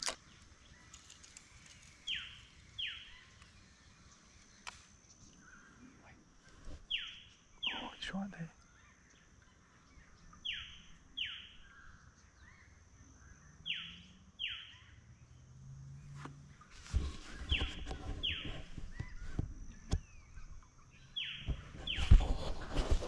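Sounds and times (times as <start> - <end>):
knocks and rustling: 16.8 - 20.0.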